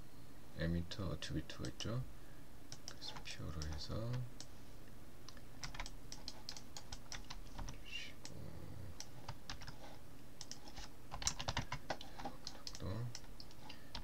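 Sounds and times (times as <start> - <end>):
keyboard and mouse clicking: 2.7 - 4.5, 5.3 - 8.4, 9.0 - 14.0.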